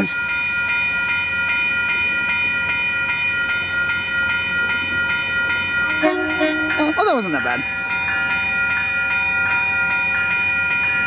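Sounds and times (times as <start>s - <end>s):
train air horn blast: 5.8s - 7.3s.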